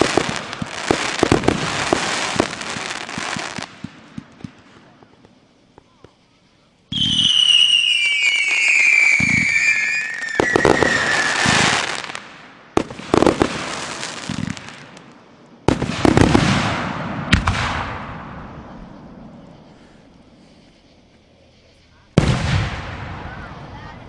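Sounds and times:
fireworks crackling: 0.0 - 24.0
shrill falling whistle: 6.9 - 11.6.

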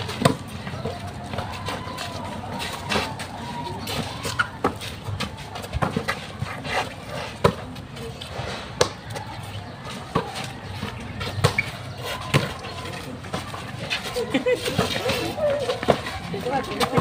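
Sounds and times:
faint voices: 0.0 - 17.0.

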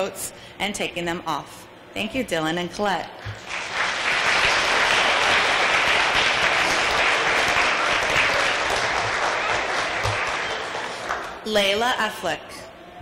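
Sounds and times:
audience applauding: 3.4 - 11.4.

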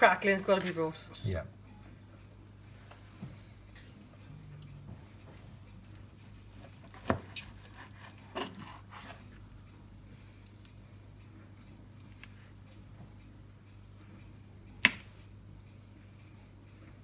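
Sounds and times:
low steady hum: 0.0 - 17.0
knife and fork scraping cutting board: 7.3 - 9.3.

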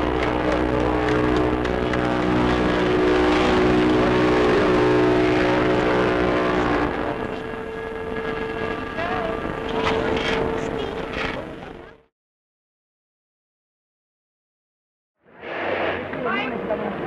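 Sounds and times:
ship horn deep blast: 0.0 - 11.8.

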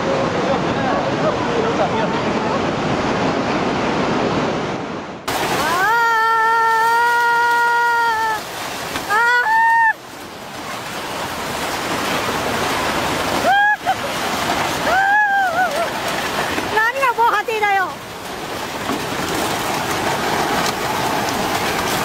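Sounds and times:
floodwater rushing: 0.0 - 22.0
person shouting: 5.6 - 8.4, 9.1 - 9.9.

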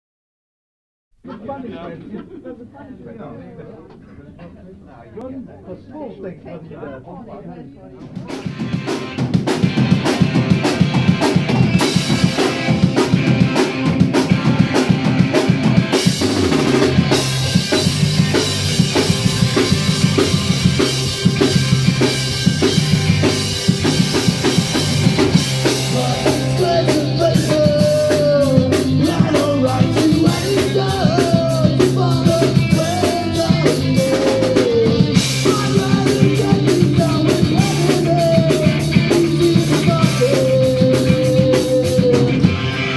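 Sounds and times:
drum kit: 8.0 - 42.9
bass and electric guitar: 8.1 - 42.9
person singing: 25.3 - 42.9.

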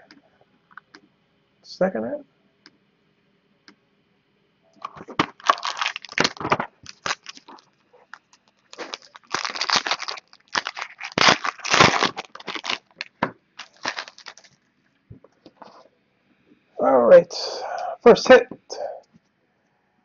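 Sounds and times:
foil wrapper crinkling and tearing: 4.8 - 14.6.

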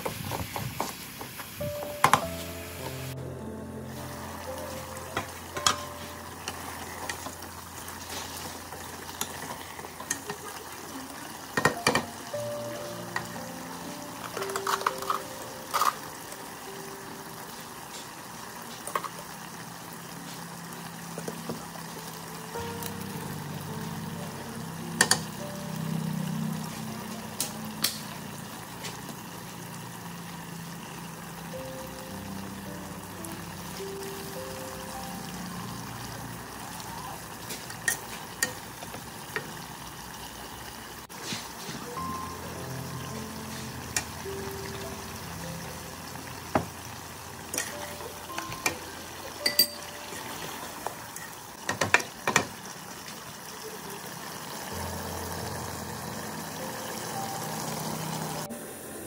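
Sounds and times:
sizzling: 0.0 - 59.0
utensils clinking against metal pot: 5.2 - 7.4, 14.2 - 16.1, 37.6 - 38.9, 47.5 - 50.4
spoon clinking against pot: 49.4 - 50.0.

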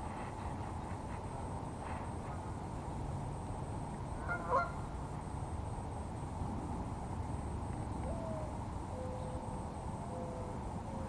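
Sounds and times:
background hiss: 0.0 - 11.0
bird cooing: 8.0 - 11.0.

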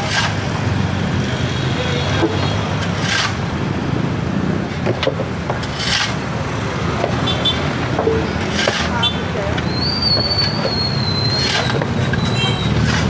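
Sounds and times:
shovels scraping rubble on concrete: 0.0 - 0.6, 2.2 - 3.5, 4.7 - 6.4, 7.9 - 13.0.

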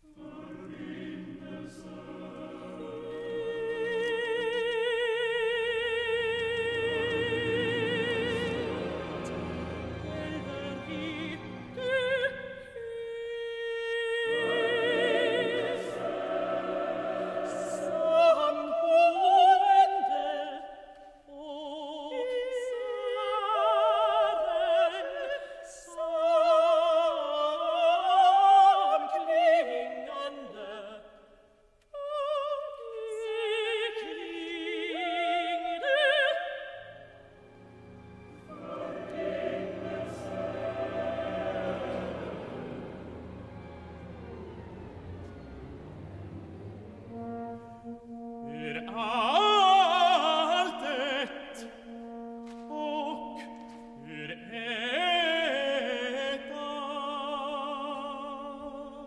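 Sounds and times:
high operatic voices singing: 0.0 - 20.6, 38.1 - 51.0
low sustained orchestral sound: 0.0 - 20.8, 33.6 - 58.9.

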